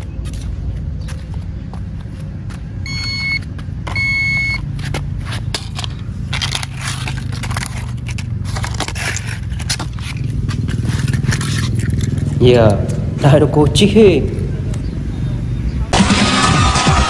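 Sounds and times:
metal detector beeps: 0:02.8 - 0:04.7
toy cars clicking on paving stones: 0:04.8 - 0:13.0
cardboard rustling: 0:05.3 - 0:12.2.

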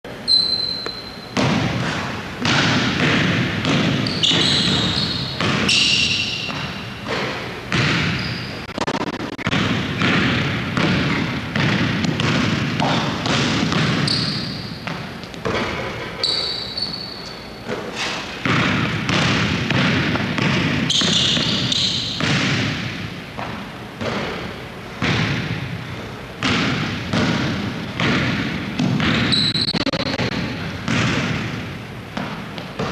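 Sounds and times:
shoe squeaks: 0:00.2 - 0:02.1, 0:03.9 - 0:07.1, 0:07.9 - 0:08.9, 0:13.9 - 0:14.9, 0:15.8 - 0:18.3, 0:20.9 - 0:22.3, 0:29.2 - 0:30.3
basketball bouncing on wooden floor: 0:00.6 - 0:17.0, 0:17.7 - 0:25.8, 0:26.4 - 0:32.9.

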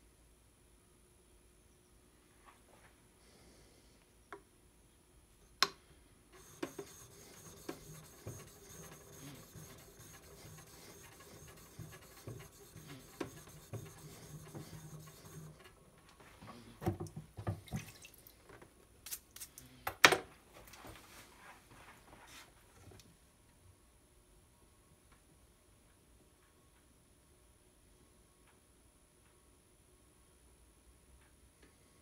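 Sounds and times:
brush scrubbing wet stone: 0:06.4 - 0:15.6.

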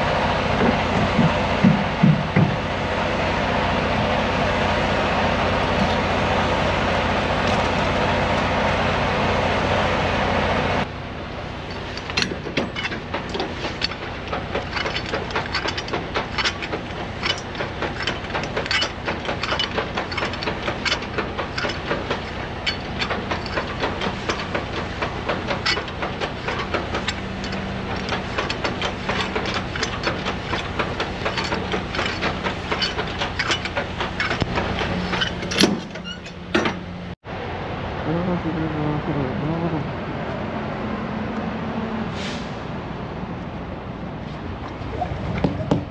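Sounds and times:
crank handle clicks and clunks: 0:11.7 - 0:37.0.

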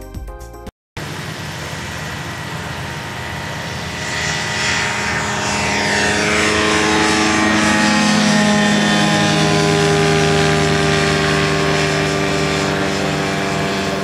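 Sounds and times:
light aircraft engine and propeller: 0:01.0 - 0:14.0.

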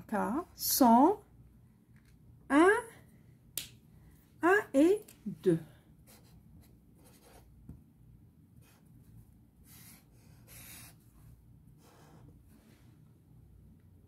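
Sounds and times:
marker pen scratching on paper: 0:06.0 - 0:07.7, 0:08.6 - 0:12.5.

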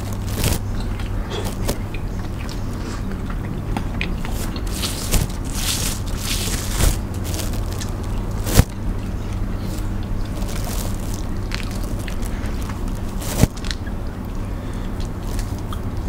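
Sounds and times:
shells crackling: 0:00.0 - 0:01.8, 0:04.3 - 0:13.9
crunchy chewing: 0:00.0 - 0:16.0
steady low hum: 0:00.0 - 0:16.0.

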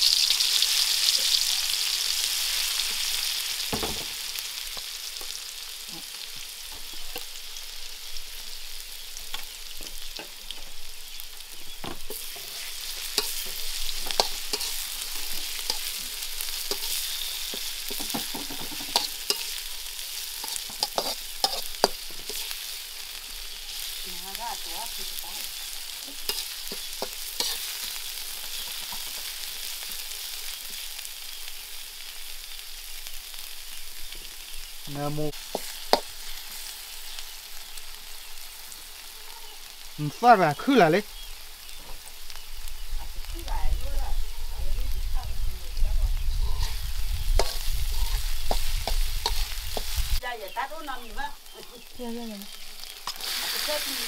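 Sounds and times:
food sizzling in hot oil: 0:00.0 - 0:54.0
metal ladle scraping wok: 0:12.0 - 0:29.6, 0:46.4 - 0:50.1.

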